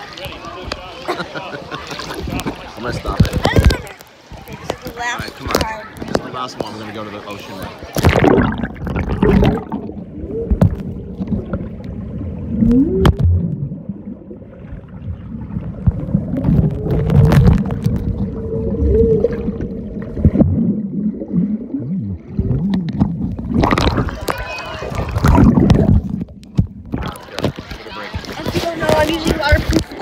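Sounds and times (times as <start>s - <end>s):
underwater rumbling and gurgling: 7.9s - 30.0s.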